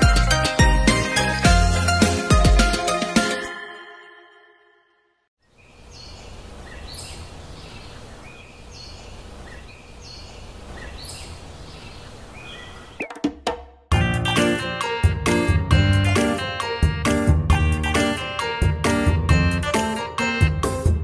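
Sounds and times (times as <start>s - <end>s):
small bird chirping: 5.4s - 13.2s.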